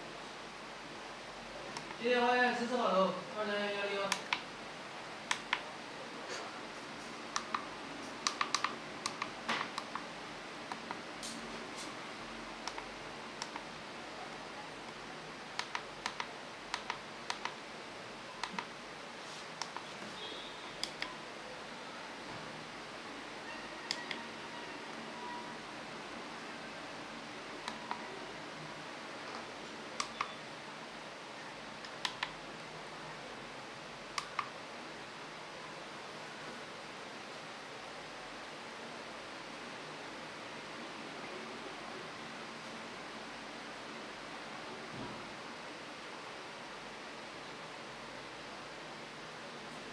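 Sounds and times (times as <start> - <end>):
steady low hiss: 0.0 - 49.9.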